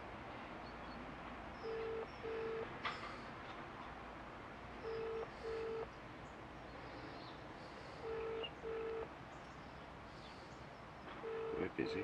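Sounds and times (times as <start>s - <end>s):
short beeps: 4.8s - 5.9s, 11.2s - 11.6s
telephone double ring: 11.2s - 11.6s.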